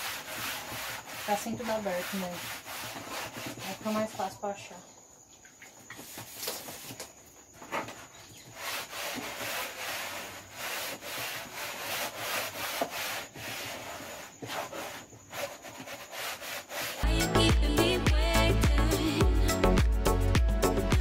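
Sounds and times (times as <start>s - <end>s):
scrubbing plastic shelf: 0.0s - 4.4s, 6.0s - 17.0s.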